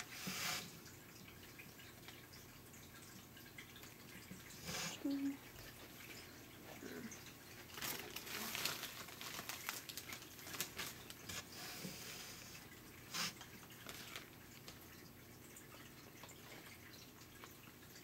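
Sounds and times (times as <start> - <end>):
droplets pattering on leaves: 7.6 - 11.5.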